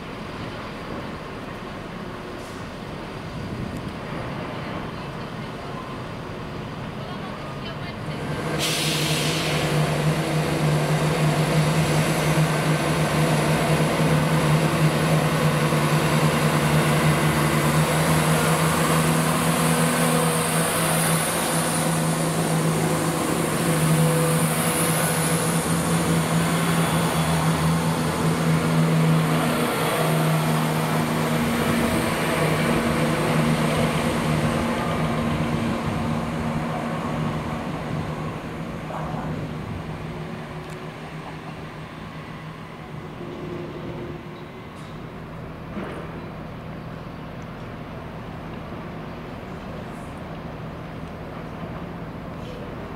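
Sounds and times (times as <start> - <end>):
diesel train engine running: 0.0 - 52.9.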